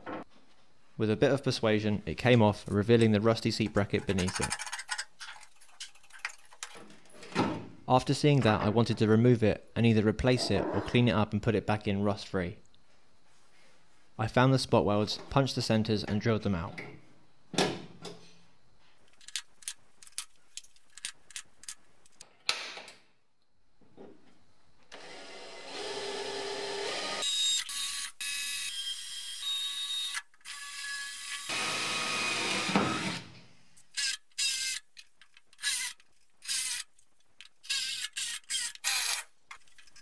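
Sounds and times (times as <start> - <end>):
cordless drill boring metal: 25.0 - 33.2, 34.0 - 34.8, 35.6 - 36.9, 37.6 - 39.3.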